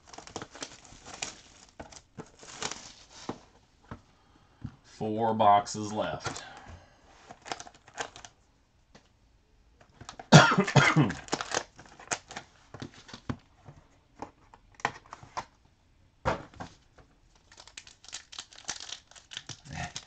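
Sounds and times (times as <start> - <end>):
wrappers crinkling: 0.0 - 3.3, 7.3 - 8.4, 11.1 - 13.2, 17.3 - 20.0
card packs rustling and clicking: 0.0 - 4.0, 6.0 - 6.6, 7.2 - 8.4, 9.8 - 15.6, 16.4 - 20.0
person coughing: 10.3 - 11.3.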